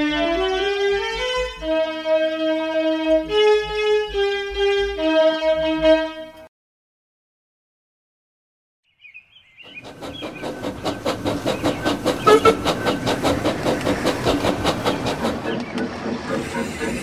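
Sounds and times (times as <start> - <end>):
model train chuffing clatter: 9.7 - 17.0.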